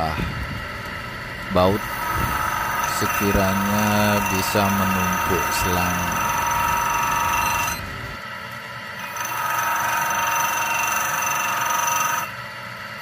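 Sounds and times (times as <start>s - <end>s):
bench grinder motor whine: 0.0s - 8.4s, 9.0s - 12.5s
steel bolt grinding hiss: 1.6s - 7.9s.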